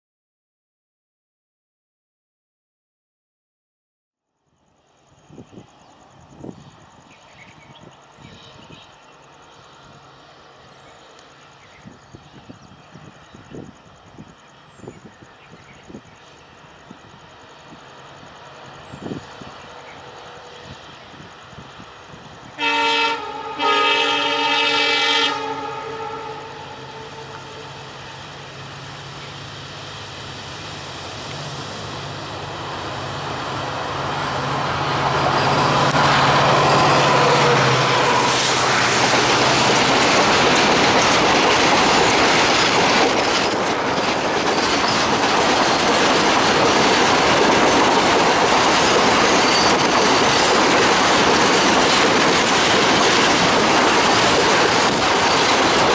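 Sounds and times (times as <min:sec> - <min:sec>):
diesel locomotive engine drone: 0:04.5 - 0:55.9
locomotive horn: 0:22.6 - 0:28.2.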